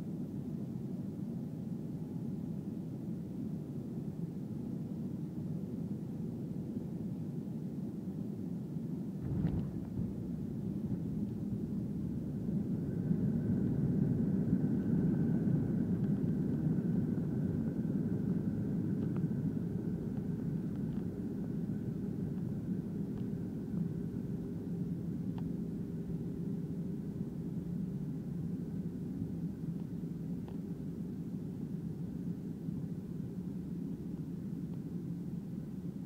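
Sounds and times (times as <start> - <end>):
faint steady whine: 0.0 - 36.0
low rumble of engines and wheels: 0.1 - 36.0
short knock: 9.2 - 10.3.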